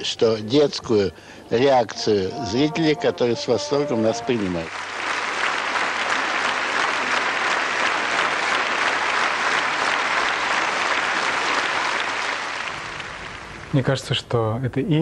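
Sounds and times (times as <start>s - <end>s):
audience applauding: 4.3s - 14.0s.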